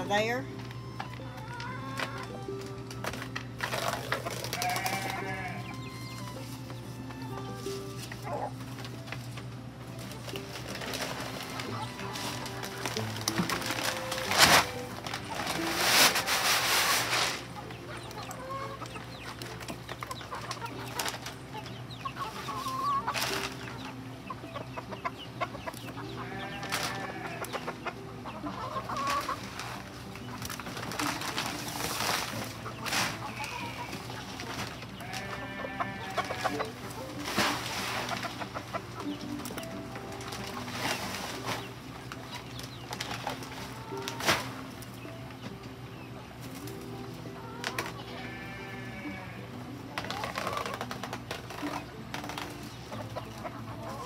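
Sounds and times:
hen clucking: 0.0 - 54.0
paper sacks rustling: 1.9 - 17.8, 20.4 - 23.8, 26.2 - 27.4, 28.6 - 44.8.

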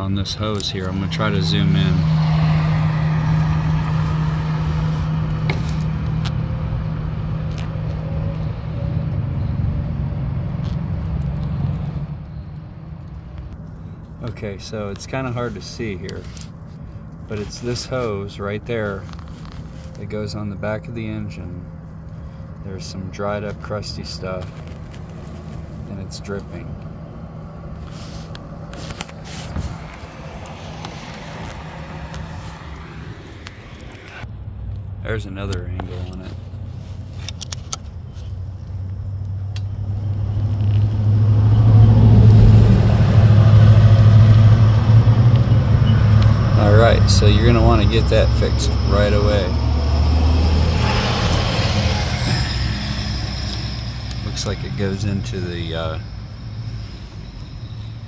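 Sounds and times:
clicks and rustles of handling: 35.8 - 38.4
car engine idling: 40.7 - 58.0.

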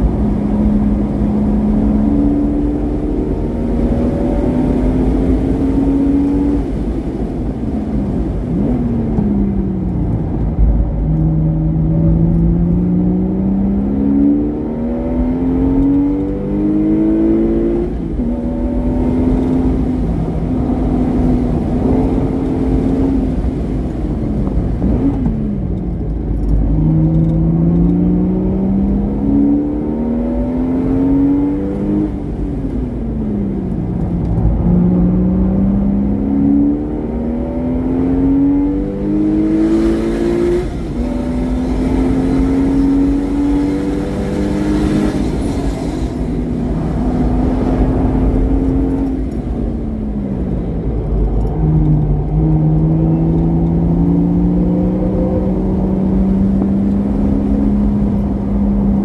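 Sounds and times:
car engine revving and upshifting: 0.0 - 59.0.

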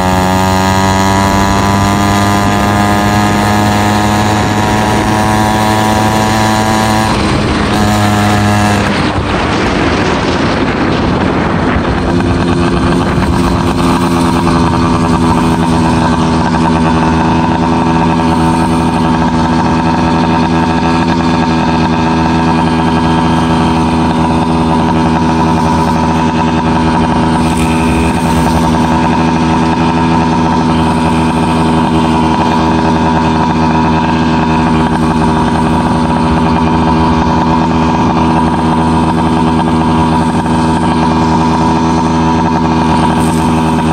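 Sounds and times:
two-stroke engine idling: 0.0 - 43.9.

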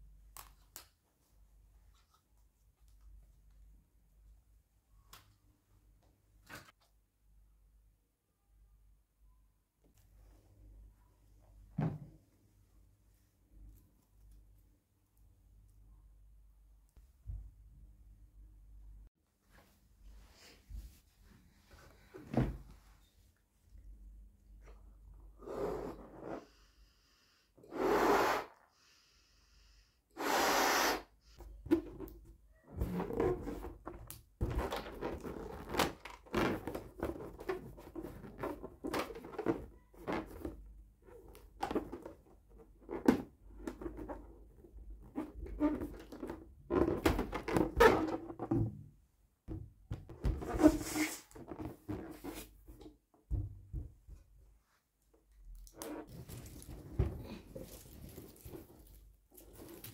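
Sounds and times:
air rushing into balloon: 27.6 - 28.7, 30.1 - 31.4
rubbery balloon squeaks: 34.4 - 38.9, 50.2 - 52.5.

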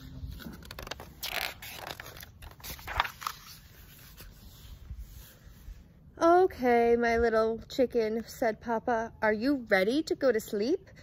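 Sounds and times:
page turning swishes: 0.0 - 5.4
book page rustling: 0.0 - 5.6.

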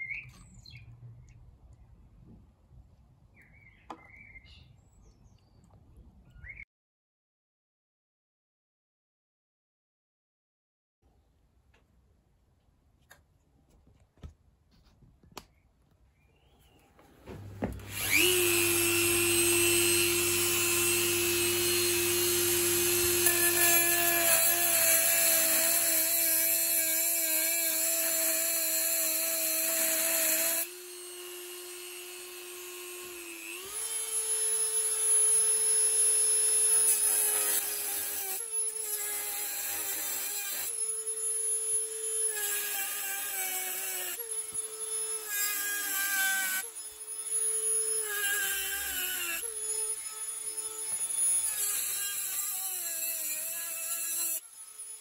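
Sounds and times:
rotary tool cutting metal: 17.3 - 55.0.

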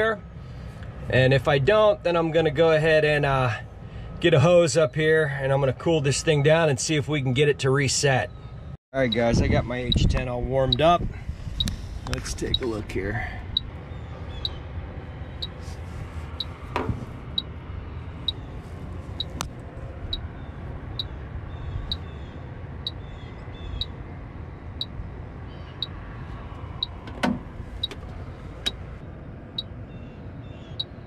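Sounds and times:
leak detector ticking: 9.0 - 10.9, 11.6 - 12.7.

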